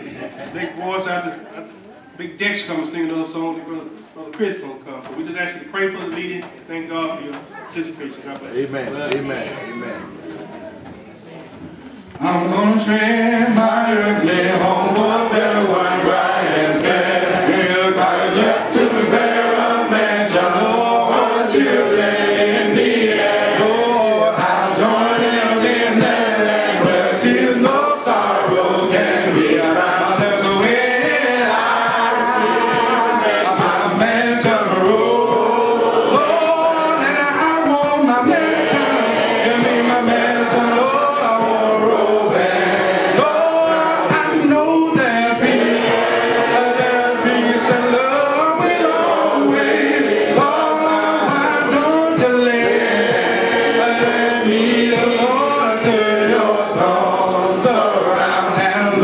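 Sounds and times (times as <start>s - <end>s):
man singing a cappella: 12.2s - 53.1s, 53.7s - 59.0s
voices singing along: 12.2s - 59.0s.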